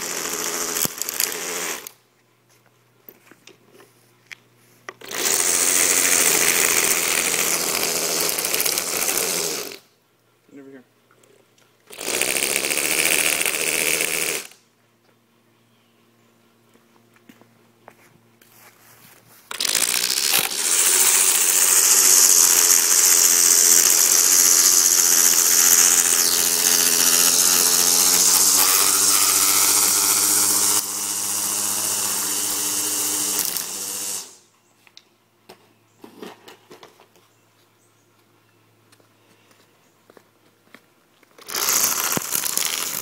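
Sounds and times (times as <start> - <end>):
line trimmer whining: 0.0 - 2.0, 4.9 - 9.9, 11.9 - 14.6, 19.5 - 34.4, 41.4 - 43.0
trimmer line hissing on grass: 19.5 - 34.4, 41.4 - 43.0.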